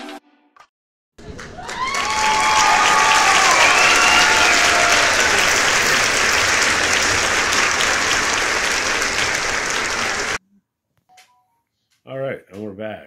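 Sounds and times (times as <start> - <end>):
crowd applause: 1.2 - 10.4.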